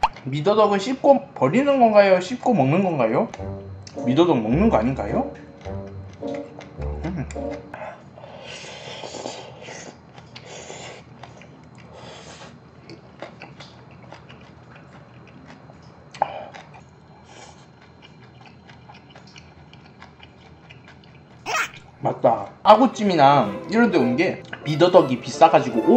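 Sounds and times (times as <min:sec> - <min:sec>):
wet chewing: 0:12.8 - 0:21.8.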